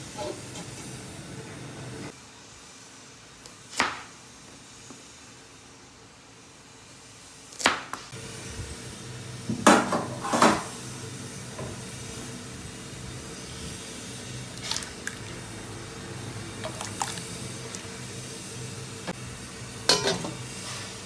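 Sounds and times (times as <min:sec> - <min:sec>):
kitchen utensils clattering: 0:19.9 - 0:20.4.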